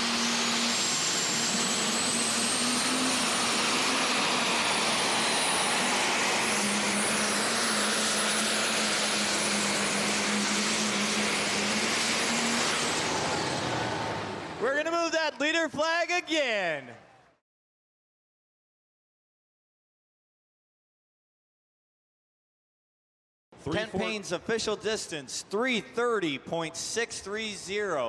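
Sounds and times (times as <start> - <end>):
diesel tractor engine running: 0.0 - 14.8
turbocharger whine: 0.0 - 14.9.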